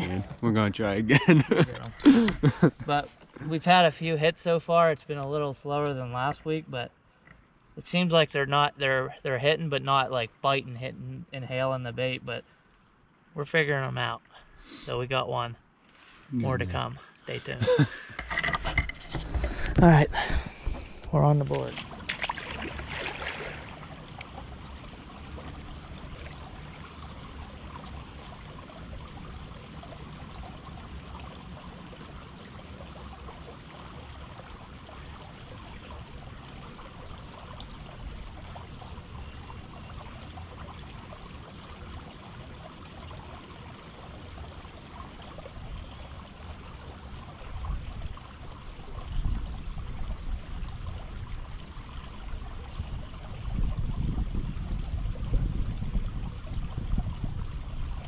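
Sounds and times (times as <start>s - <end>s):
river water flowing: 14.1s - 53.8s.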